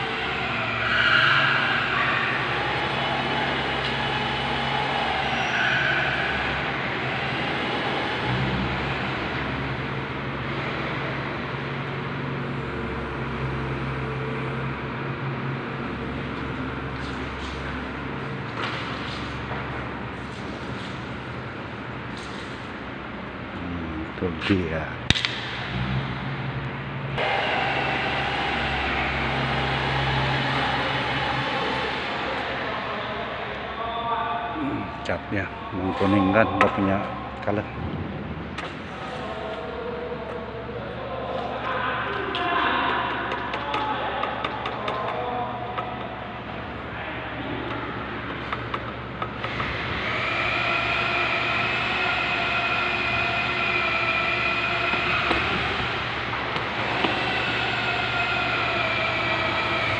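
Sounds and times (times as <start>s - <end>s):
low mechanical hum: 0.0s - 59.9s
steady multi-tone whine: 0.0s - 59.9s
rushing noise: 25.0s - 39.9s, 49.1s - 59.9s.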